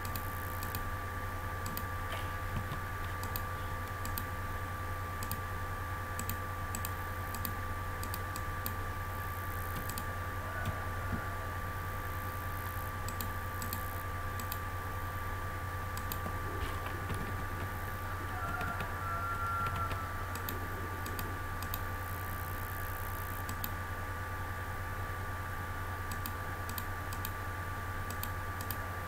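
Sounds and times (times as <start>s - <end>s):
low hum and hiss: 0.0s - 29.0s
mouse and keyboard clicks: 9.7s - 10.8s.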